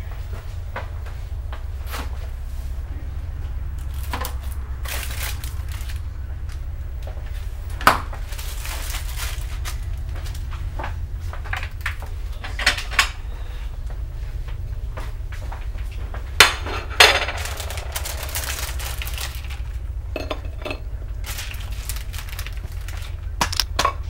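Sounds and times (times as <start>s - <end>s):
low steady hum: 0.0s - 24.0s
dishes and cupboards clinking: 20.1s - 21.7s.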